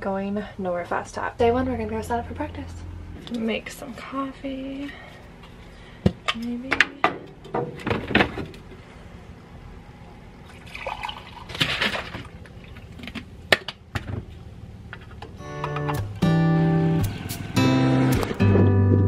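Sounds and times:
coffee pouring into mug: 10.6s - 11.5s.

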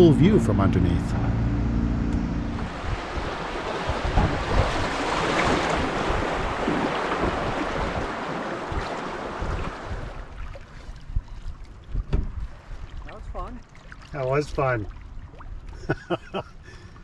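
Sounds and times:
wind buffeting microphone: 2.5s - 13.6s
river water rushing: 2.6s - 10.5s.

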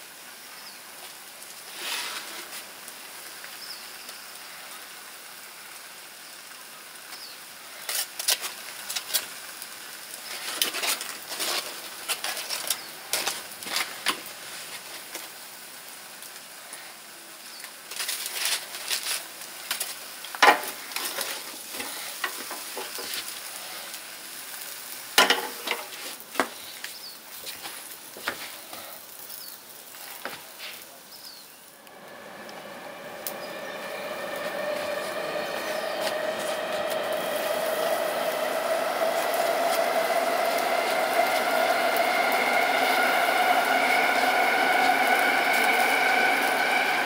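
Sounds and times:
beef sizzling on a grill: 0.0s - 31.7s.

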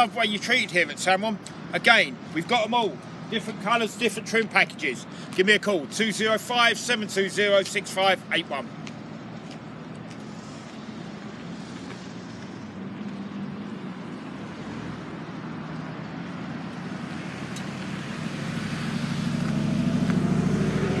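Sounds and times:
vehicle engine running: 10.1s - 21.0s.

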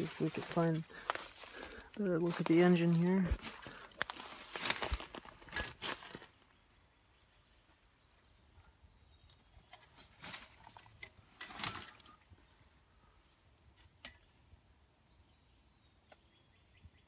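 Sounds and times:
twigs and brush rustling: 0.0s - 6.9s, 9.2s - 12.8s.

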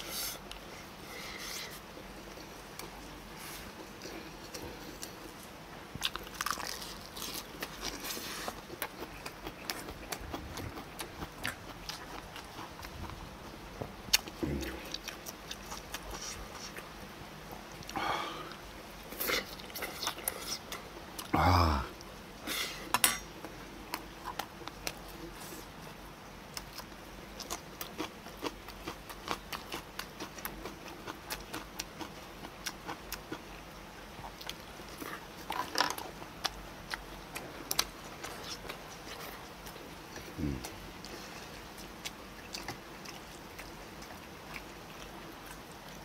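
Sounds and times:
man chewing and smacking: 2.0s - 16.9s, 17.5s - 21.3s, 23.4s - 25.9s, 26.5s - 46.0s
low hum of voice: 14.4s - 15.0s, 21.3s - 22.0s, 40.2s - 40.8s.

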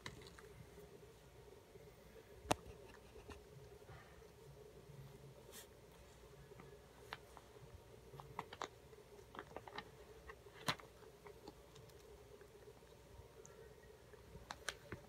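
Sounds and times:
faint steady hum: 0.0s - 15.0s
cat licking and pawing paper: 5.0s - 13.0s.

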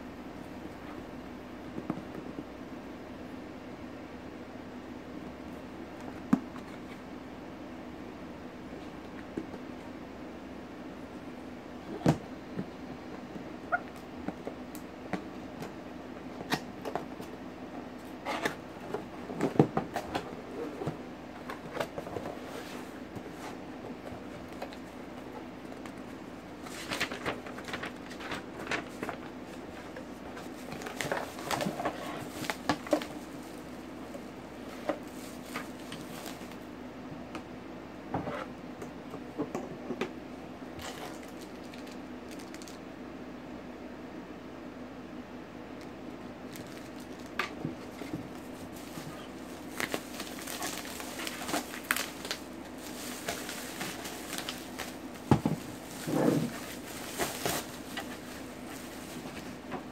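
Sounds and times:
steady low hum: 0.0s - 59.9s
cardboard rustling and scraping: 18.0s - 36.6s, 46.5s - 59.9s.

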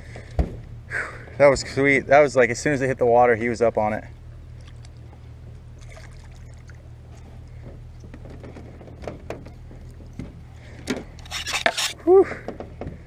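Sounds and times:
steady low hum: 0.0s - 13.0s
water splashing and trickling: 4.5s - 5.2s, 5.8s - 7.4s.

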